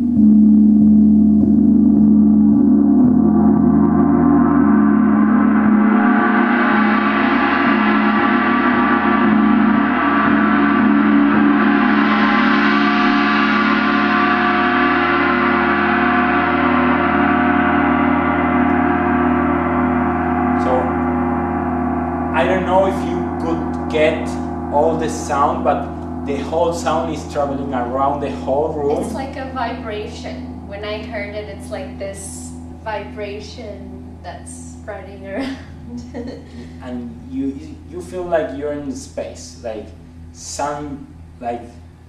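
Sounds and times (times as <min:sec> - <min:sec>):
gong struck with soft mallet: 0:01.4 - 0:31.2.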